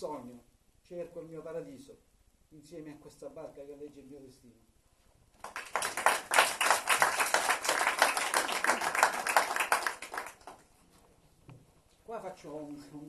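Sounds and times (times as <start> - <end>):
audience applauding: 5.4 - 10.6.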